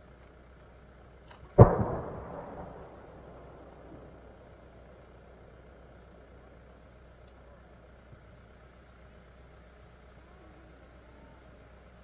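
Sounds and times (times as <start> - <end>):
faint low outdoor rumble: 0.0 - 12.0
deep firework mortar boom: 1.5 - 6.9.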